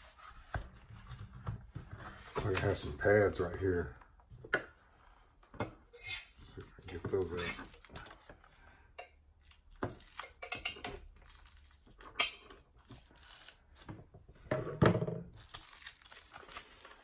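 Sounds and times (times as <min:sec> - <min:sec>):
plastic packaging clicks and rustles: 0:07.2 - 0:08.3, 0:09.4 - 0:10.4, 0:11.0 - 0:14.0, 0:15.3 - 0:17.0.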